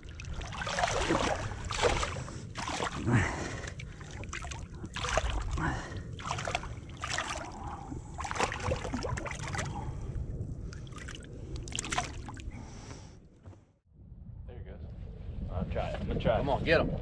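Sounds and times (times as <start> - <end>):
water splashing against boat: 0.0 - 9.9, 10.7 - 12.5.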